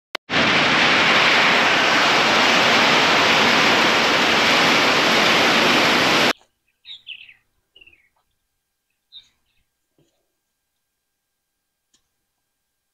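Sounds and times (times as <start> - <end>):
heavy rain: 0.2 - 6.3
wind: 0.2 - 12.9
bird chirps: 6.3 - 9.8.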